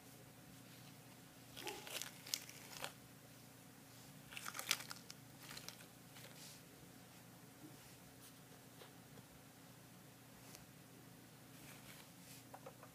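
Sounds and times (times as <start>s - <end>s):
paper tissue crumpling: 1.5s - 3.0s, 4.3s - 6.6s.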